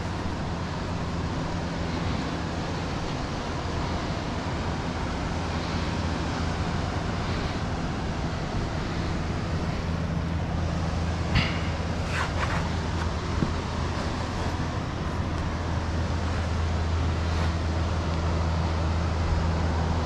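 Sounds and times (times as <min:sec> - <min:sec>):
wind buffeting microphone: 0:06.3 - 0:19.8.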